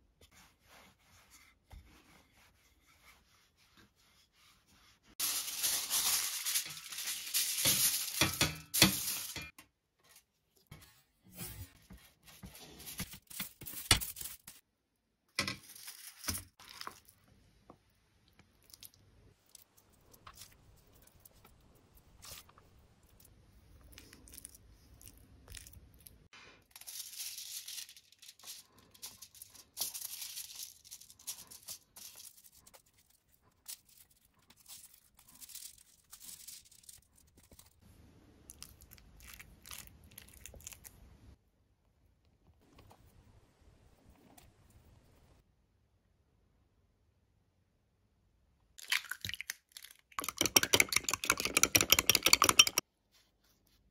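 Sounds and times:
aluminium foil crinkling: 0:05.2 - 0:09.5, 0:15.5 - 0:17.2, 0:26.6 - 0:37.8.

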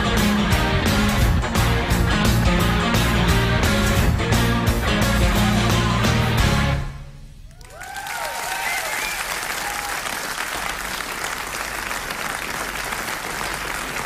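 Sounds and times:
audience applauding and cheering: 0:07.4 - 0:14.0
whoops from audience: 0:07.5 - 0:10.3.

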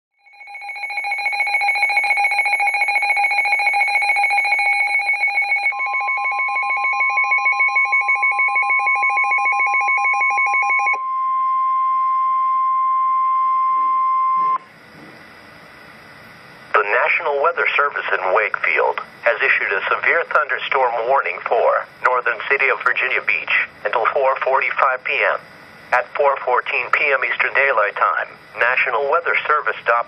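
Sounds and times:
steady alarm tone: 0:00.2 - 0:30.0
pulsing two-pitch alert siren: 0:00.3 - 0:14.7.

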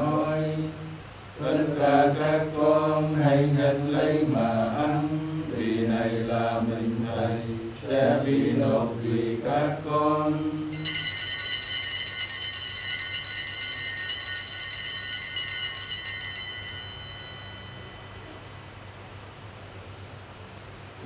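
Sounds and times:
altar bells ringing: 0:10.8 - 0:18.4.

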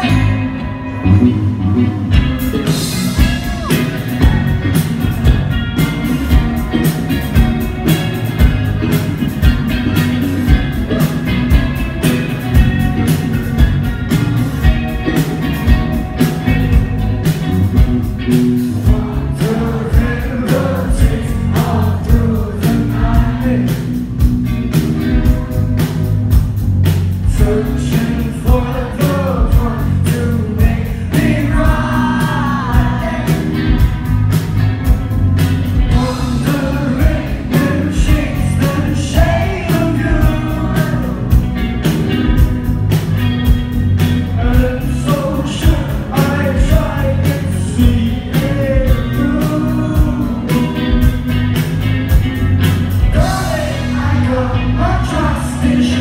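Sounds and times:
male voice singing: 0:00.0 - 0:06.9, 0:18.6 - 0:24.1, 0:27.2 - 0:34.0, 0:35.9 - 0:41.4, 0:44.2 - 0:51.2, 0:53.1 - 0:56.0
live band playing pop: 0:00.0 - 0:56.0.

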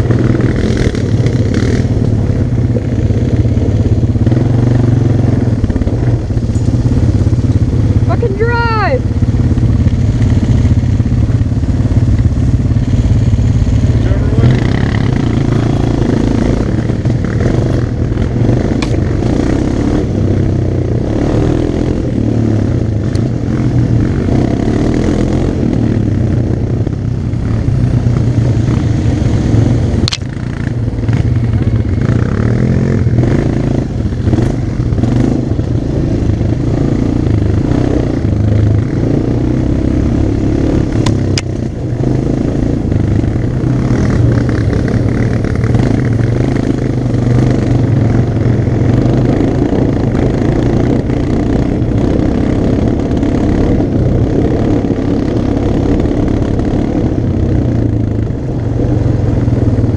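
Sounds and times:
quad engine running: 0:00.0 - 0:59.9
sharp click: 0:18.8 - 0:19.0, 0:30.0 - 0:30.3.

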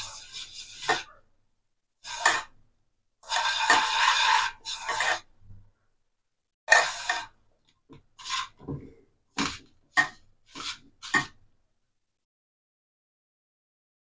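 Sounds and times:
hand scraping flour on pan: 0:00.0 - 0:01.2, 0:02.0 - 0:02.6, 0:03.2 - 0:05.5, 0:06.7 - 0:07.4, 0:08.0 - 0:11.5.

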